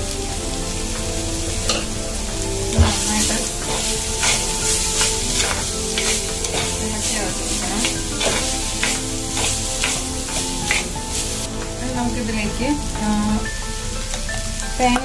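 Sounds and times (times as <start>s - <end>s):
vegetables sizzling in oil: 0.0s - 15.0s
spatula scraping clay pot: 2.8s - 11.5s.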